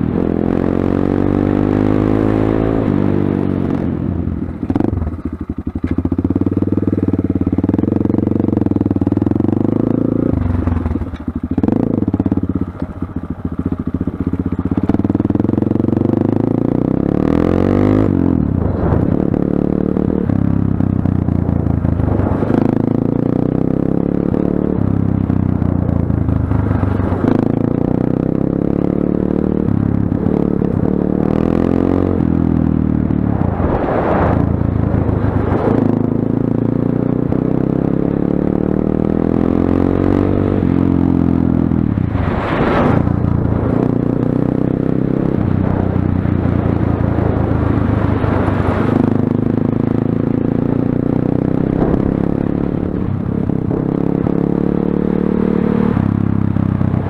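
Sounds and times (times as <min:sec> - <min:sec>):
motorcycle engine revving: 0:00.0 - 0:57.0
bursts of rushing noise: 0:42.0 - 0:44.0.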